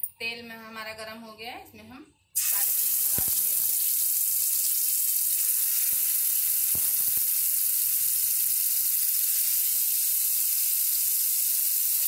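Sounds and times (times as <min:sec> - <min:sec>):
sharp oil pops: 0:02.4 - 0:04.8, 0:05.4 - 0:07.7
chicken sizzling in frying pan: 0:02.4 - 0:12.0.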